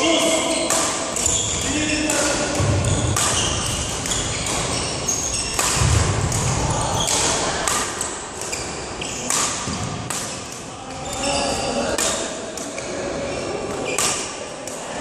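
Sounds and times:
shoe squeaks on court floor: 0.0s - 5.8s, 8.5s - 9.4s, 10.9s - 11.8s
rackets hitting shuttlecocks: 0.0s - 11.2s, 11.8s - 12.9s, 13.7s - 14.8s.

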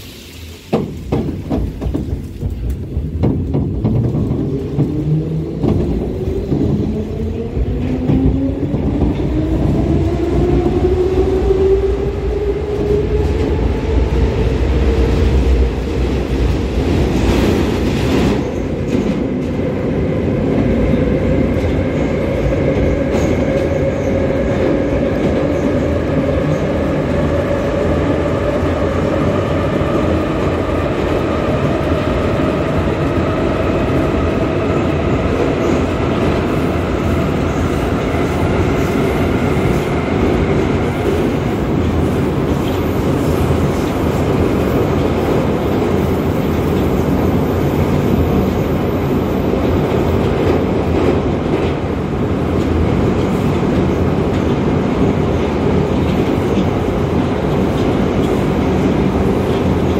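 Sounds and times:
burst of hiss: 0.0s - 1.0s
wheels rumbling on rail: 0.0s - 59.9s.

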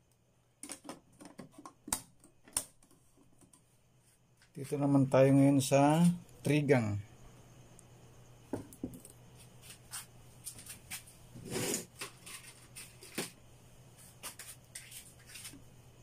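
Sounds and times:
faint low hum: 0.0s - 11.4s
scuff: 9.4s - 11.7s.

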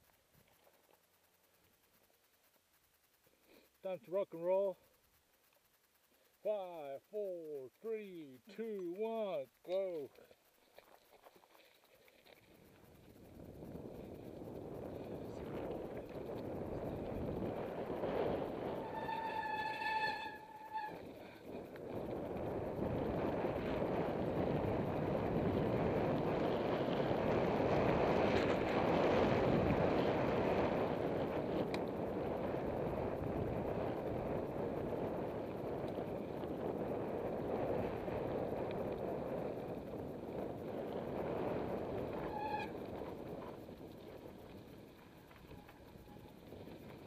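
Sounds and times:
wind rushing over microphone: 12.9s - 45.0s
bike brakes squealing: 18.7s - 21.2s, 42.1s - 42.8s.

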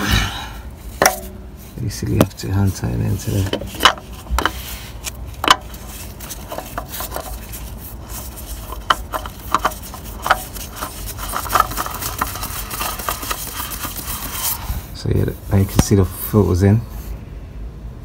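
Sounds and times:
plastic glove rustling: 0.8s - 14.8s.

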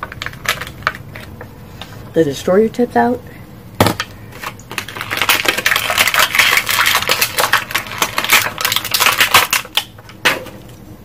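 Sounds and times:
plastic packaging crinkling: 0.0s - 1.5s, 3.8s - 10.8s.

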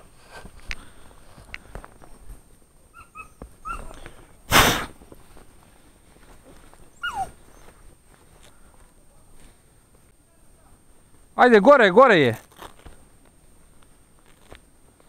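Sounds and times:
dogs whining and yelping: 2.9s - 4.0s, 6.9s - 7.8s.

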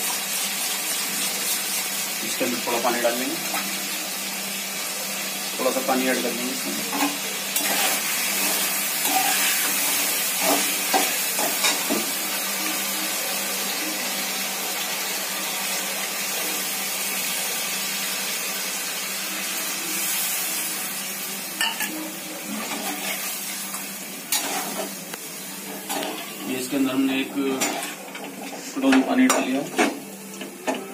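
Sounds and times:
food sizzling in a pan: 0.0s - 30.9s
metal ladle scraping a pan: 6.9s - 11.0s, 24.3s - 24.9s.

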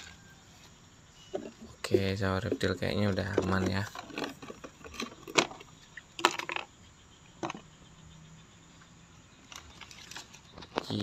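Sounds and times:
handling knocks and clicks: 2.4s - 6.7s, 7.4s - 7.7s.

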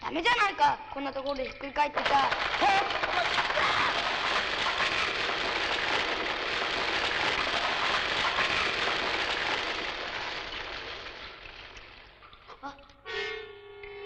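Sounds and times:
falling rock and gravel: 2.0s - 12.2s.

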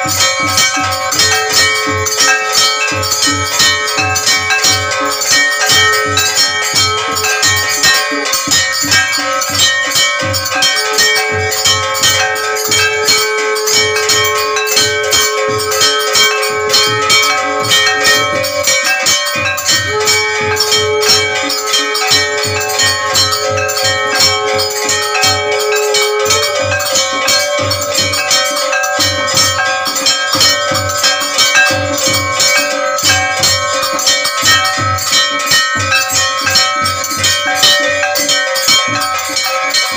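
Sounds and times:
steady low beat: 0.0s - 39.9s
temple bells clanging rapidly: 0.0s - 39.9s
long held tone: 10.5s - 29.4s.

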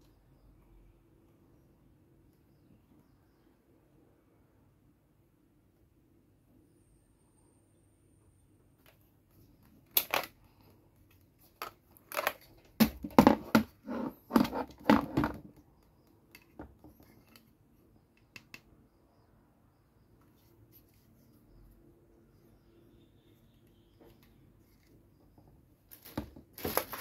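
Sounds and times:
hard plastic clicks and snaps: 18.1s - 18.7s.

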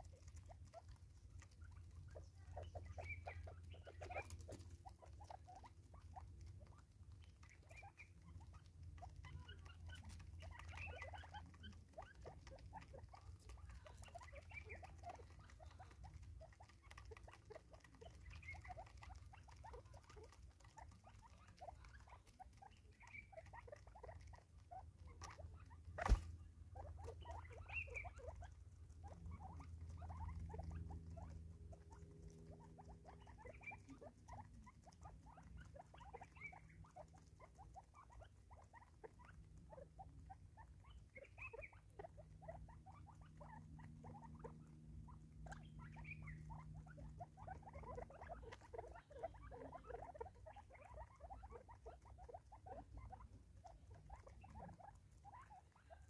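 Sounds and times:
soft bird calls: 0.0s - 31.5s, 42.9s - 49.9s.

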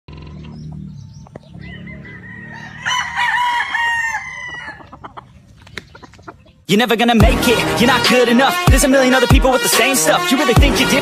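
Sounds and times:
rooster crowing: 1.5s - 5.2s.

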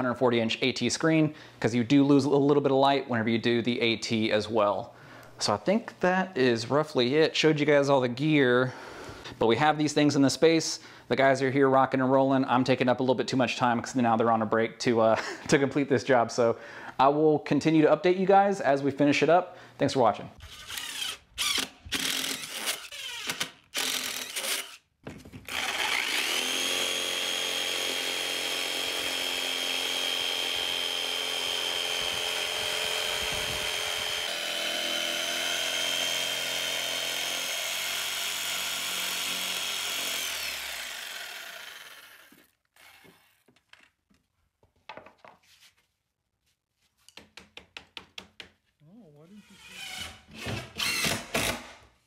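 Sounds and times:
cordless drill boring: 20.4s - 24.8s, 25.5s - 43.4s, 49.5s - 51.7s
jigsaw cutting with high whine: 20.5s - 24.8s, 25.5s - 43.5s, 49.5s - 51.8s.

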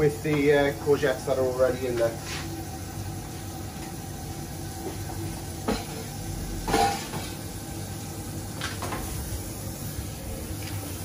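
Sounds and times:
food sizzling in a frying pan: 2.2s - 11.0s.

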